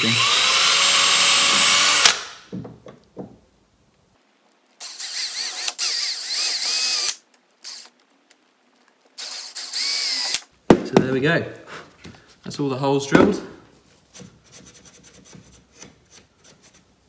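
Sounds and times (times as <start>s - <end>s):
cordless drill whining: 0.0s - 2.2s, 4.8s - 7.9s, 9.2s - 10.5s.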